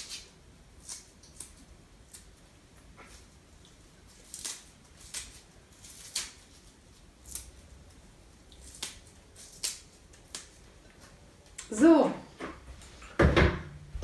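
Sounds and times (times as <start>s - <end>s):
kale leaves tearing and snapping: 0.0s - 11.7s.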